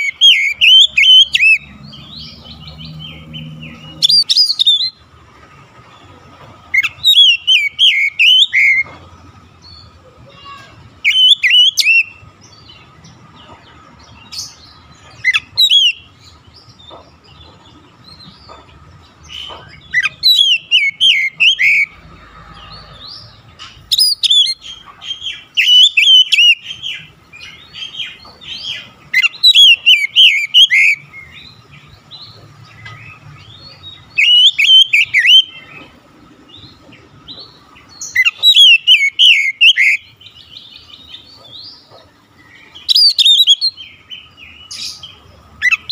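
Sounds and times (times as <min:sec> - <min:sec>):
bird singing whistled notes: 0:00.0 - 0:05.0, 0:06.8 - 0:08.9, 0:11.0 - 0:12.7, 0:15.2 - 0:16.1, 0:19.5 - 0:22.0, 0:23.9 - 0:31.6, 0:33.4 - 0:35.8, 0:38.0 - 0:41.4, 0:42.8 - 0:45.9.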